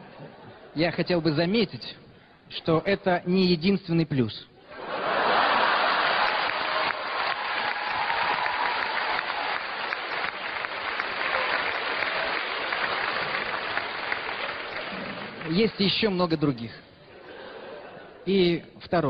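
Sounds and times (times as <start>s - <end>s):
audience applause: 4.8s - 16.0s.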